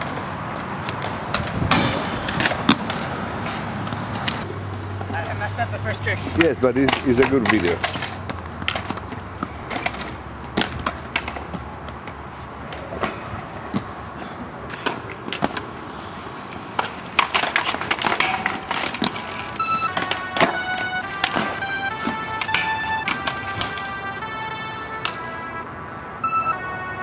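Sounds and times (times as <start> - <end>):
skates clacking on ground: 0.0 - 24.3
skate wheels rolling on concrete: 0.0 - 25.2
music with held notes: 19.6 - 25.4.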